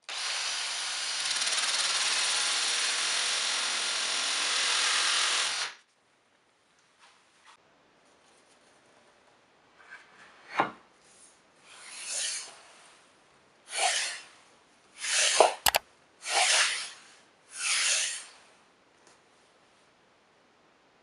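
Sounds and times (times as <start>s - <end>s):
sharp double click: 15.6s - 15.8s.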